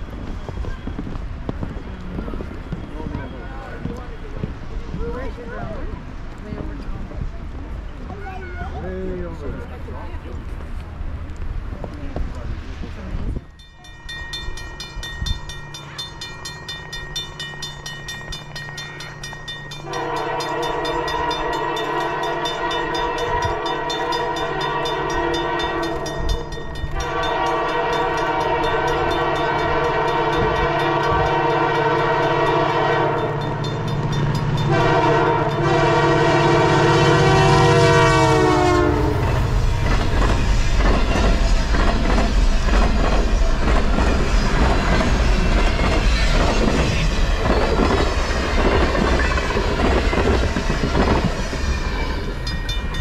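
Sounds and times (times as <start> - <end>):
locomotive air horn blasts: 19.8 - 26.3, 27.0 - 33.4, 34.6 - 39.5
locomotive low hum: 29.0 - 53.0.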